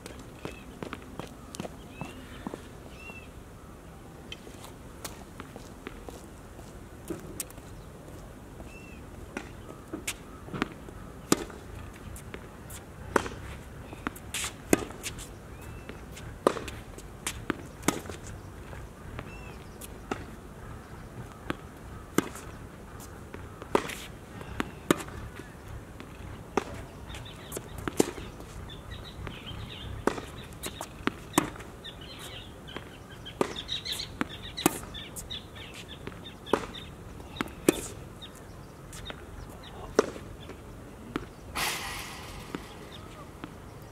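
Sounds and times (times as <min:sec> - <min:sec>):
tennis ball bounces: 0:09.3 - 0:20.4, 0:21.2 - 0:22.6, 0:23.3 - 0:38.0, 0:39.0 - 0:43.9
tennis racket strikes: 0:41.6 - 0:43.6.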